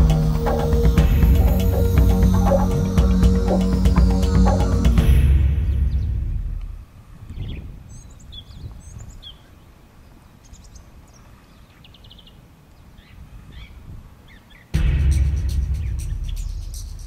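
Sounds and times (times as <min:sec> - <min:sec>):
loud soundtrack music: 0:00.0 - 0:06.5, 0:14.8 - 0:17.0
low rumble: 0:00.0 - 0:07.1, 0:14.8 - 0:17.0
birds chirping and trilling: 0:07.2 - 0:14.8.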